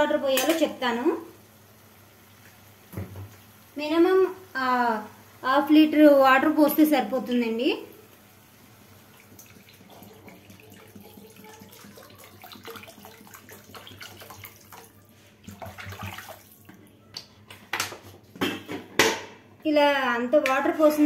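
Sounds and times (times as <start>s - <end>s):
water pouring into pan: 7.9s - 16.8s.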